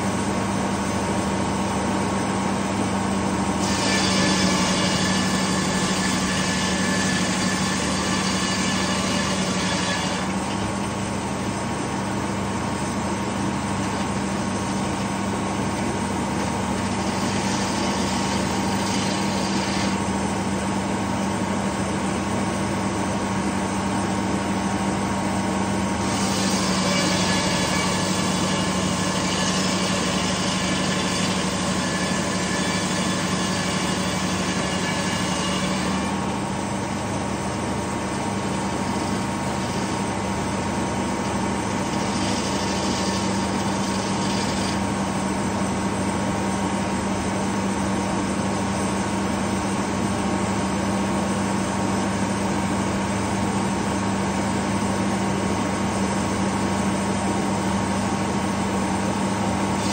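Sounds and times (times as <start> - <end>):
spinning saw blade: 3.6 - 10.8, 16.8 - 20.1, 26.0 - 36.3, 41.2 - 45.1
saw blade cutting log hiss: 41.7 - 45.0.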